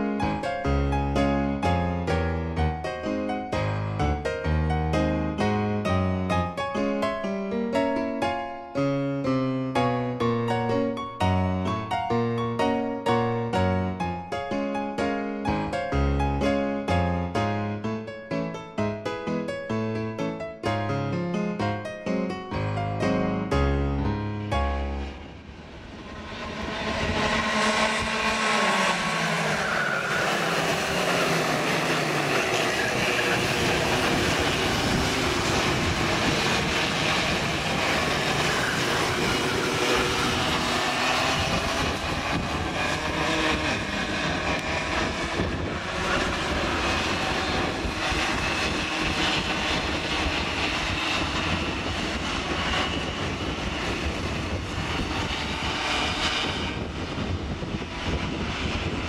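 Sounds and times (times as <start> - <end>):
racing kart engines whining: 25.0 - 59.0.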